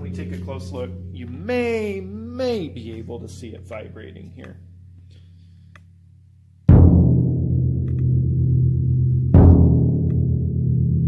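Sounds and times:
bass drum booming: 0.0s - 4.4s, 6.7s - 11.0s.

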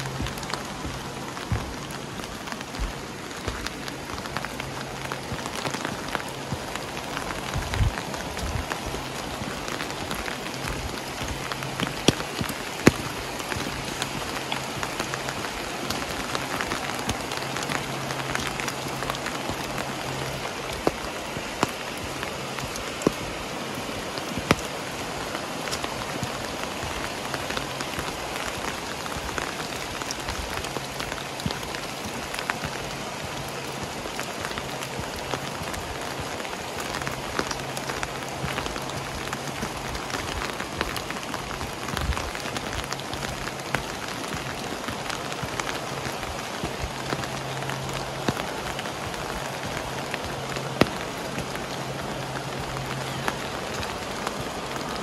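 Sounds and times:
sharp raindrop hits: 0.0s - 55.0s
steady rain falling: 0.0s - 55.0s.

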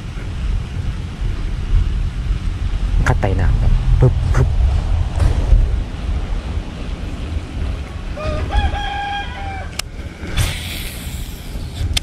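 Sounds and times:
wind rumble on microphone: 0.0s - 12.0s
rooster crowing: 8.1s - 9.8s.

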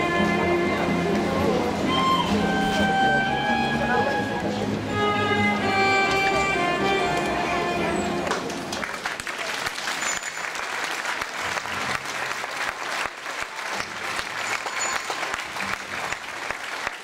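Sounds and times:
crowd applauding: 8.2s - 17.0s.

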